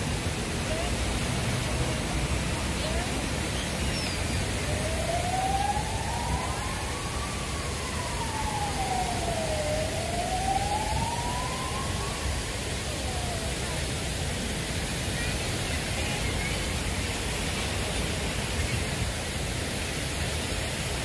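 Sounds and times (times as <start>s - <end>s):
city background hiss: 0.0s - 21.0s
emergency siren wailing: 4.2s - 14.5s.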